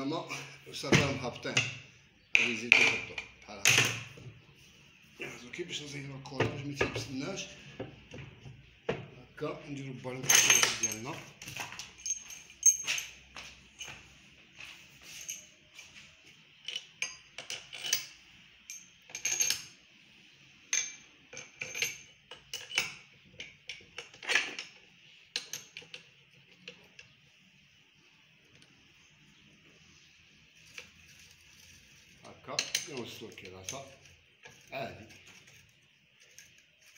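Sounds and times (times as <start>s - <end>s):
small metal parts clinking: 10.0s - 14.0s, 15.0s - 20.0s, 20.7s - 27.2s, 30.5s - 36.9s.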